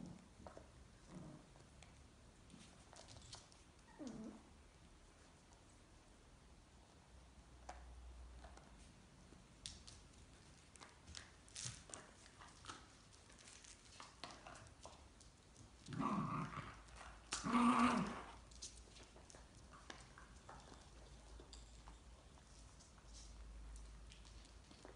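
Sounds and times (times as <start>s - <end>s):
puppies play growling: 0.0s - 4.6s, 15.6s - 21.6s
paws and toys scuffling: 9.8s - 24.9s.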